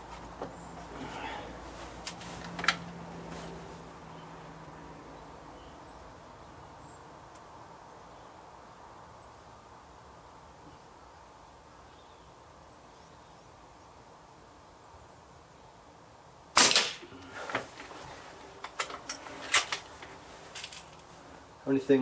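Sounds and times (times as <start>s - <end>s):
air rifle crack: 16.6s - 17.9s.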